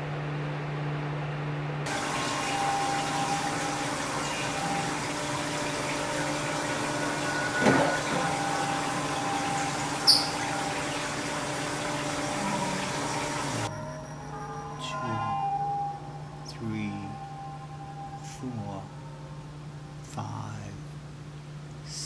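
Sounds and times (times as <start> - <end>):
water running in sink: 1.9 - 13.7
short high squeak: 10.1 - 10.4.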